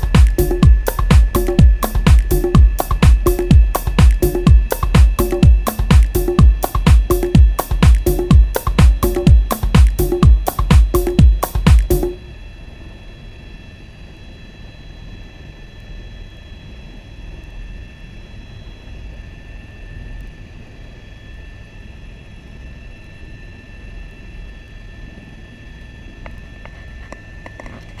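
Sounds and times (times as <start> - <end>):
high-pitched tones: 0.0 - 12.4
helicopter low rumble: 0.0 - 14.5.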